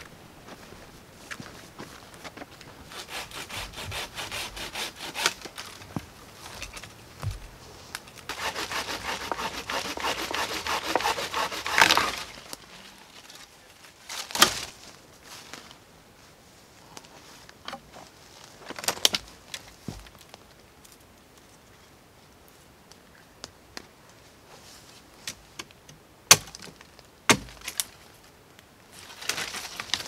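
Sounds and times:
saw cutting through branch: 2.9s - 5.5s, 8.3s - 12.5s
wood cracking: 6.5s - 13.5s.

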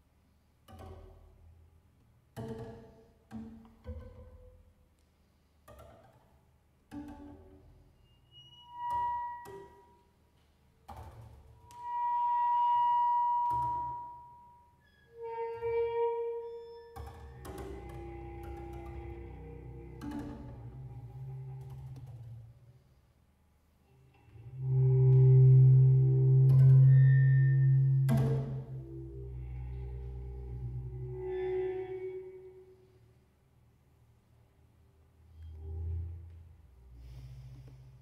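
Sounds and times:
solo double bass: 0.6s - 10.0s, 15.0s - 23.0s, 23.9s - 33.0s, 34.5s - 38.0s.

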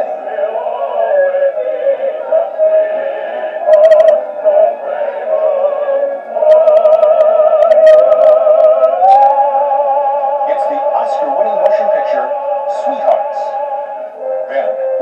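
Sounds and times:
woman singing operatically: 0.0s - 10.2s
man singing operatically: 10.4s - 13.6s.

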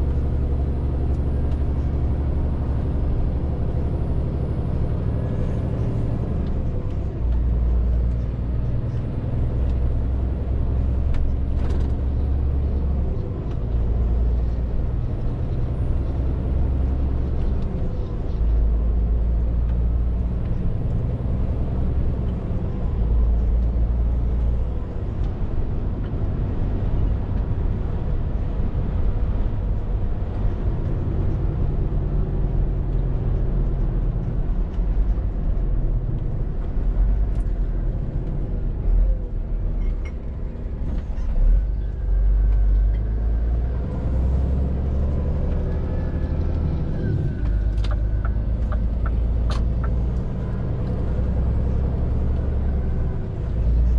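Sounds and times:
lorry diesel engine running: 0.0s - 53.9s.

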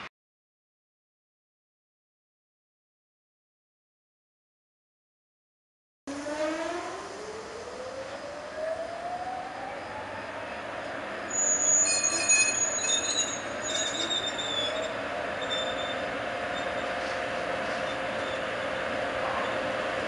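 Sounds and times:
electric locomotive whine rising: 6.1s - 20.0s
wheels squealing on rails: 8.0s - 19.9s.

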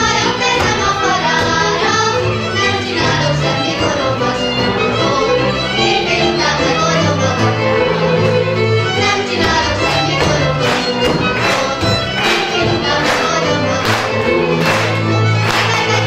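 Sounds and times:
fiddle folk dance music: 0.0s - 16.0s
dancers stamping on stage: 9.0s - 16.0s.

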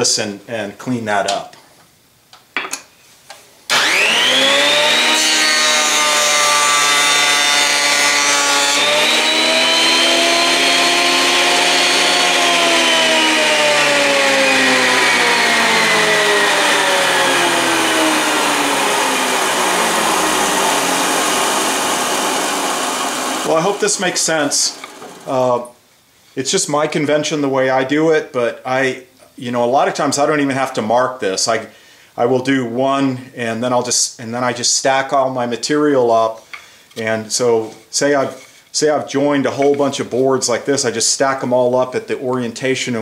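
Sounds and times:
thickness planer motor whining: 3.7s - 25.5s
planer cutting board hiss: 18.6s - 25.4s.

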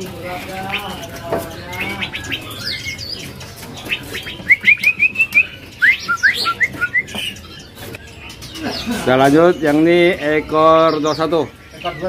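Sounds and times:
bird chirps: 0.0s - 12.0s
bird whistled song: 1.7s - 9.9s.

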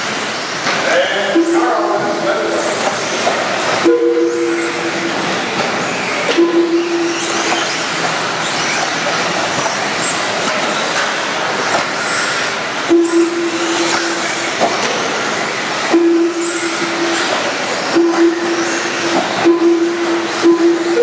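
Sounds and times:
electric motors whining: 0.0s - 21.0s
low beep: 3.8s - 4.9s, 6.3s - 7.5s, 12.9s - 14.2s, 15.9s - 17.2s, 17.9s - 21.0s.

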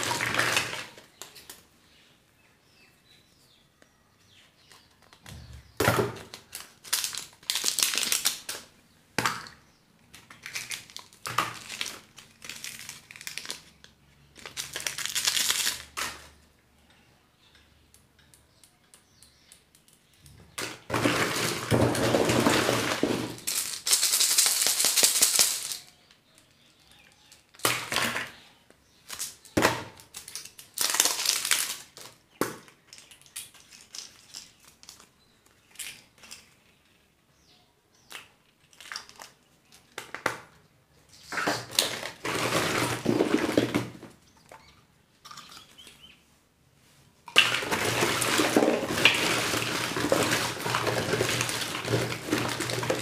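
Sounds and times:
wrappers crinkling and tearing: 6.2s - 8.7s, 10.2s - 16.3s, 21.0s - 26.1s, 29.0s - 32.2s, 32.8s - 36.6s, 41.2s - 43.8s, 47.4s - 53.0s.

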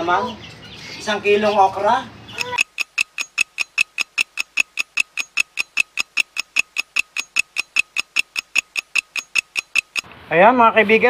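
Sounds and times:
countdown timer ticking: 2.4s - 10.1s.

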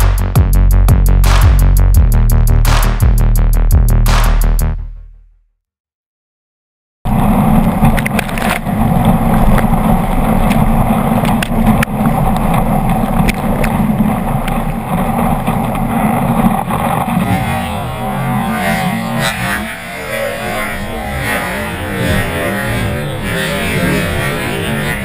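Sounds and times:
churning whitewater rushing: 7.1s - 25.0s.

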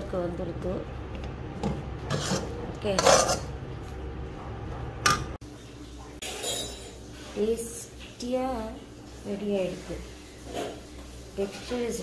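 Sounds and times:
spatula scraping a metal pan: 2.1s - 3.5s.

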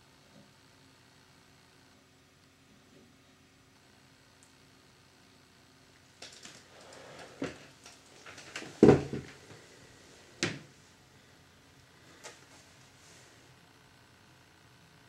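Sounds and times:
thump: 8.8s - 9.3s.

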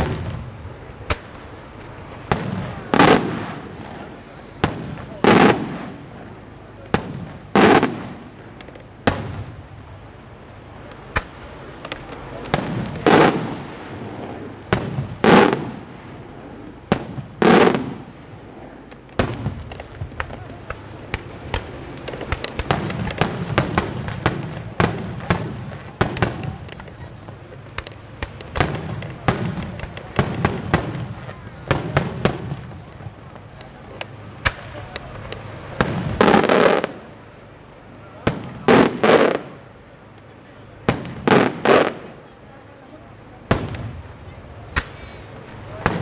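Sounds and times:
firework booms: 0.0s - 37.3s, 38.1s - 39.7s, 40.7s - 42.3s, 43.4s - 46.0s
firework cracks and pops: 0.0s - 46.0s.

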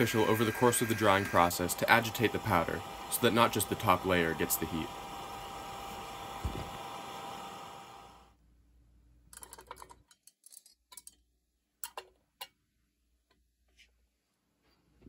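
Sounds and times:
hairdryer blowing: 0.0s - 8.2s.

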